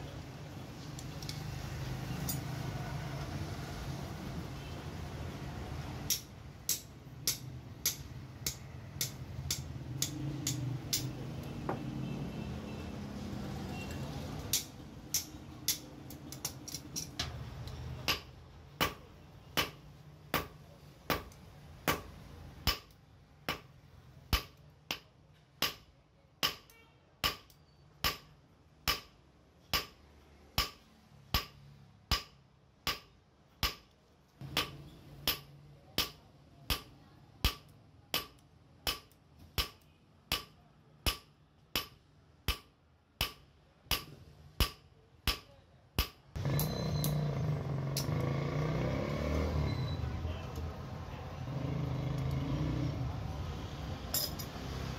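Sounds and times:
hammer striking steel on anvil: 0:06.1 - 0:11.1, 0:14.5 - 0:17.4, 0:18.0 - 0:23.7, 0:24.3 - 0:30.0, 0:30.6 - 0:47.2.

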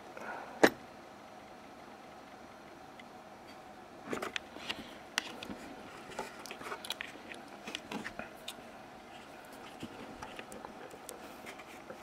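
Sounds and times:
metal probes clicking and scratching: 0:04.2 - 0:12.0.

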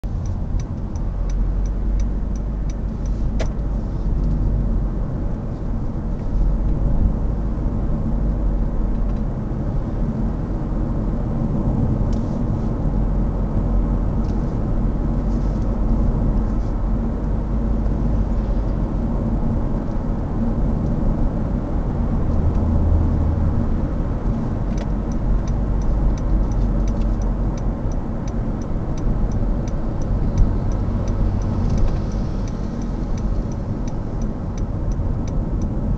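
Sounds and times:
car engine and tyre rumble: 0:00.0 - 0:35.9
turn signal ticking: 0:00.1 - 0:04.4, 0:24.1 - 0:35.9.

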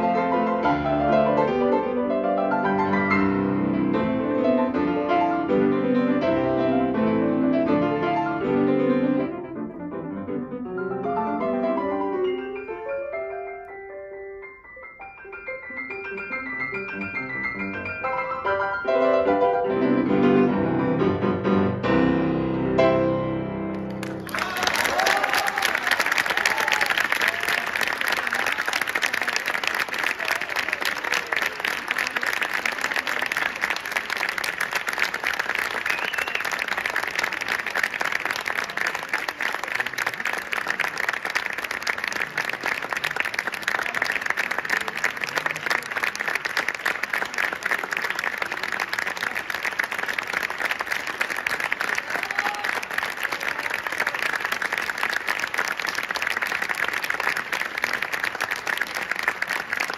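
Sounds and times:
audience applauding: 0:23.7 - 0:59.9.

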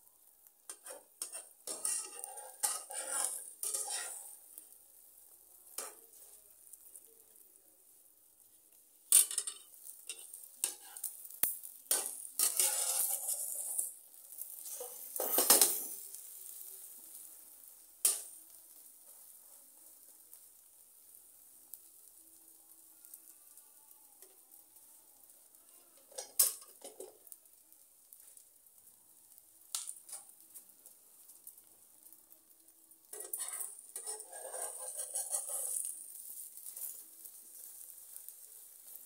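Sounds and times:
egg sizzling faintly in oil: 0:00.0 - 0:39.0
metal spatula scraping frying pan: 0:00.7 - 0:04.6, 0:09.1 - 0:16.6, 0:26.0 - 0:27.1, 0:33.1 - 0:39.0.

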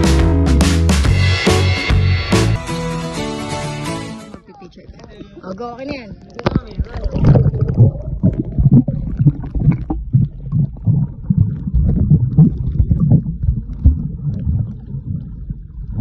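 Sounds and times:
muffled underwater sloshing: 0:04.8 - 0:16.0.

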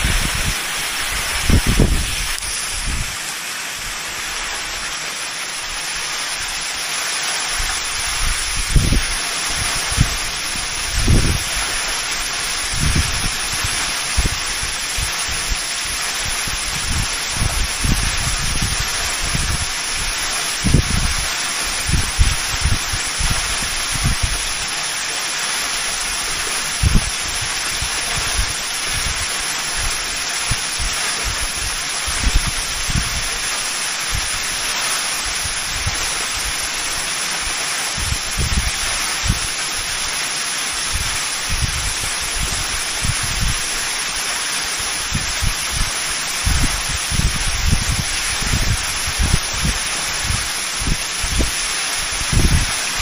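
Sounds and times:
wind buffeting microphone: 0:00.0 - 0:03.2, 0:07.6 - 0:15.6, 0:16.2 - 0:24.6, 0:26.8 - 0:33.4, 0:38.0 - 0:39.5, 0:40.9 - 0:43.6, 0:45.0 - 0:53.0
waterfall rushing: 0:00.0 - 0:53.0.

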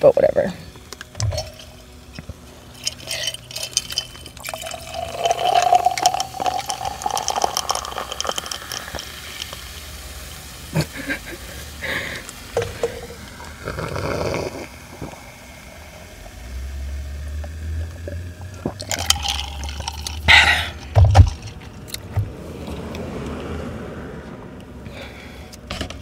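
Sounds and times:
soda fizzing into a glass: 0:02.8 - 0:21.5
mouth sounds drinking and eating: 0:12.1 - 0:15.3.

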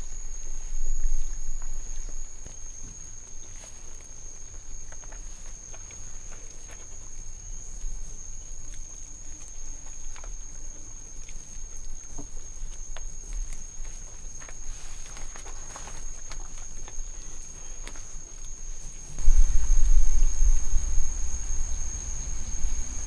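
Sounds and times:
chewing and handling food: 0:02.8 - 0:18.9
high-pitched whine: 0:19.2 - 0:23.0
low hum: 0:19.2 - 0:23.0.

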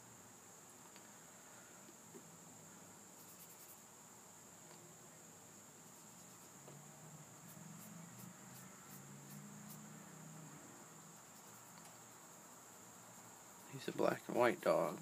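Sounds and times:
faint high-pitched whine: 0:00.0 - 0:15.0
faint low hum: 0:00.0 - 0:15.0
faint ticks: 0:11.4 - 0:12.0.

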